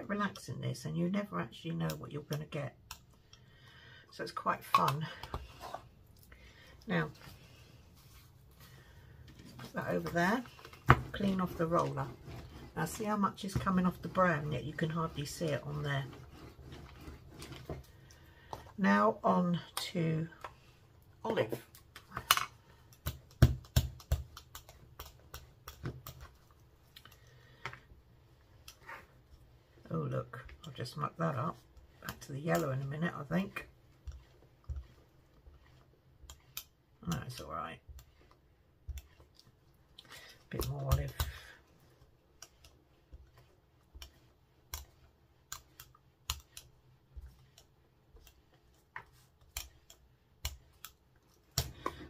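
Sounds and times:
rubber brayer clicking and tapping: 22.0s - 26.4s, 42.4s - 52.0s.

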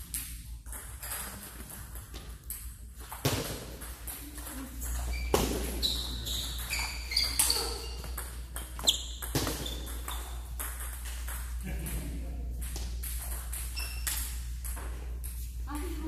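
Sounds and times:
short high squeaks: 5.0s - 8.2s, 8.8s - 10.4s, 13.7s - 14.4s.

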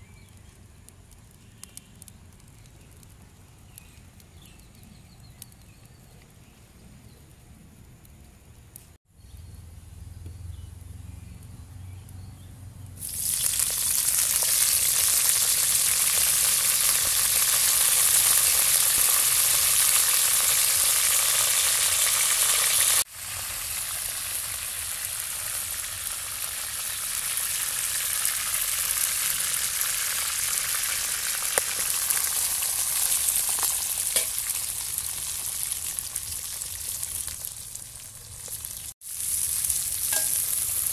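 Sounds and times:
hot oil sizzling in a wok: 13.0s - 40.9s.

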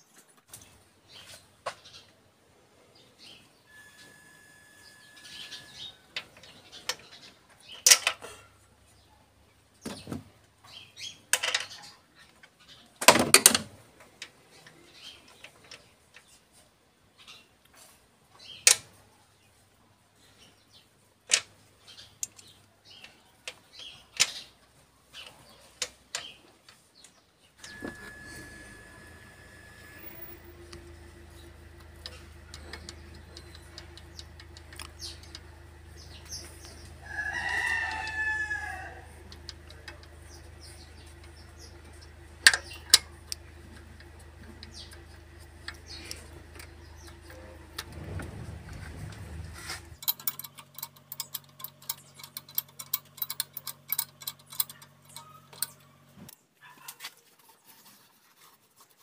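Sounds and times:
tools clicking and knocking on engine: 27.6s - 55.9s.

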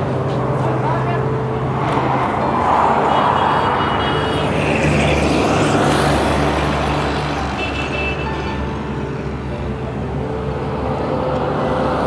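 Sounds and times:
road and traffic noise: 0.0s - 12.0s.

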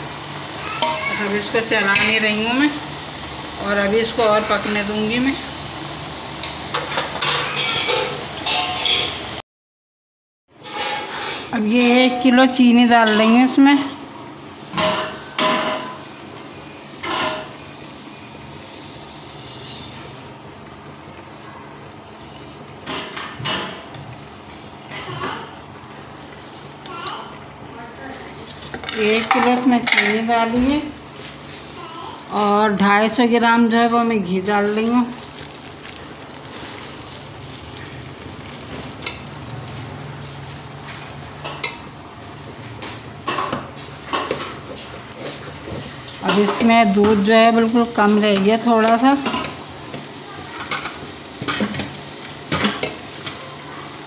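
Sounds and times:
carrots sizzling in a pot: 0.0s - 9.4s, 14.6s - 23.9s, 34.4s - 41.7s, 43.4s - 54.0s
sugar pouring hiss: 18.5s - 20.2s, 34.7s - 39.8s.

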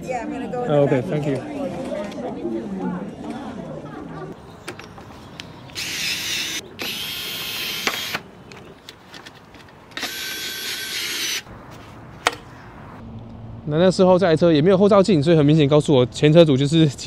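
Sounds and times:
power drill running: 5.8s - 8.2s, 10.0s - 11.5s.

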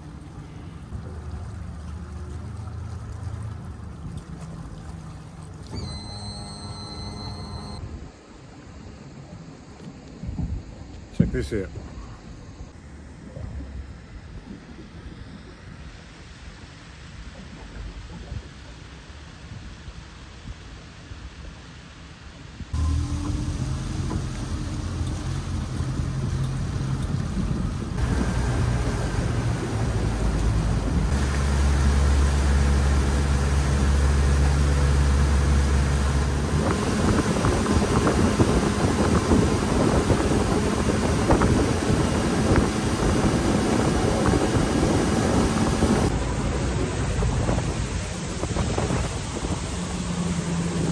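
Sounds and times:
outboard motor drone: 0.0s - 7.8s, 22.8s - 50.9s
water against hull: 0.0s - 50.9s
wind on microphone: 7.0s - 21.7s, 22.3s - 50.9s.

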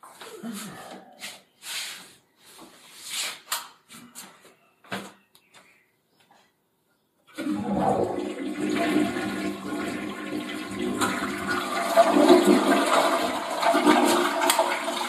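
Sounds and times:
toilet flushing: 7.3s - 15.0s.

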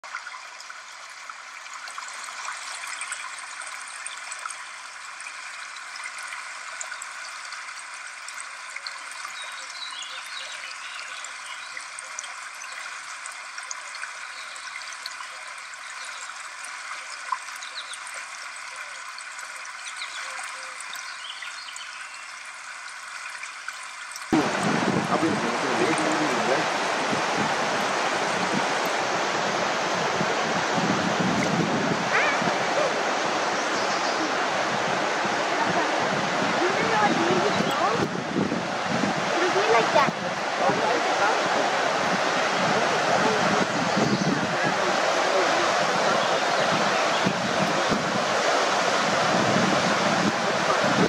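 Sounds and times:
river rushing over rocks: 24.3s - 51.0s.

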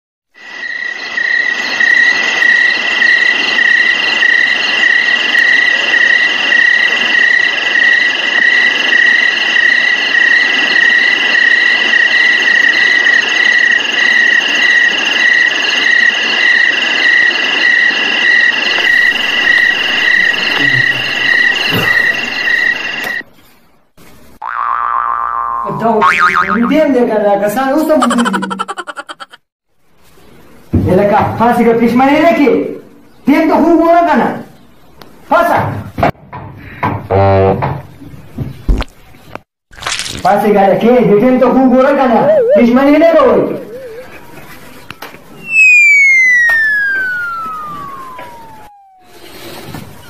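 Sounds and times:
insect chirring: 0.4s - 23.1s, 28.0s - 29.3s, 45.4s - 49.4s.

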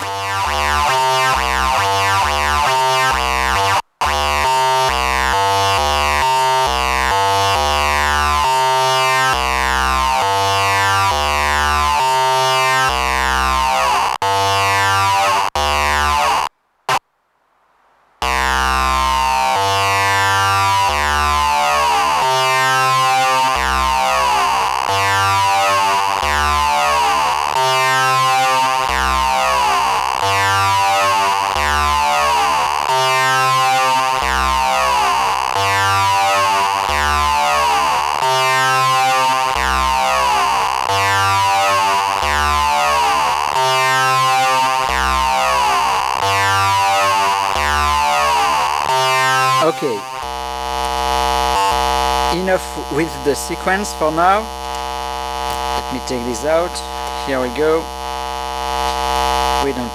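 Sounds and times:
synthesizer melodic sequence: 18.4s - 50.4s.

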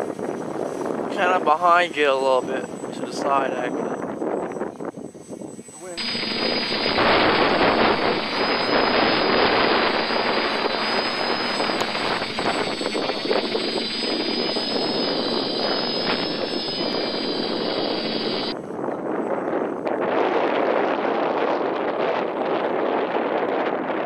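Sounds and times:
wind buffeting: 0.0s - 24.0s
drone motors and propellers rushing: 5.6s - 18.6s.

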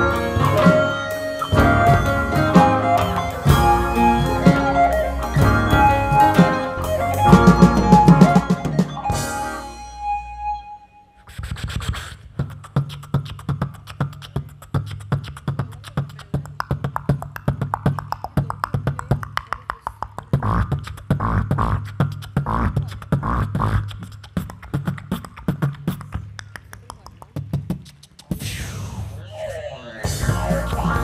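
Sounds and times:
person beatboxing into a microphone: 11.2s - 31.0s.

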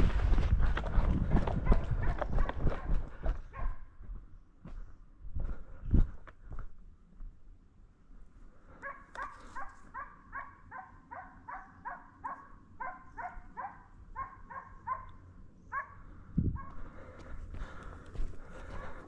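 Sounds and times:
dog barking: 1.6s - 3.9s, 8.8s - 16.0s.

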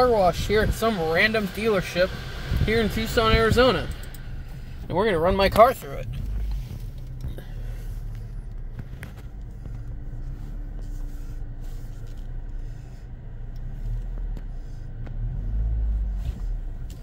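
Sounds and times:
faint steady hum: 0.0s - 16.0s
low rumble of car rolling: 0.0s - 17.0s.

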